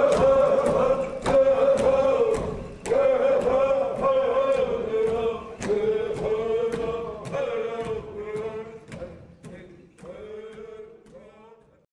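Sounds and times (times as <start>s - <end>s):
chanted vocal with long notes: 0.0s - 8.9s.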